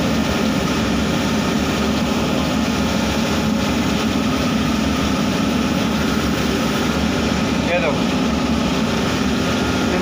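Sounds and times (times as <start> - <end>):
machine hum: 0.0 - 10.0.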